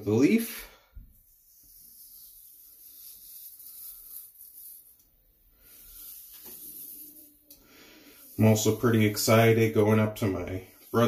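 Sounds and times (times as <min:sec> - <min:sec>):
razor scraping stubble: 0:05.7 - 0:07.5, 0:08.1 - 0:09.8.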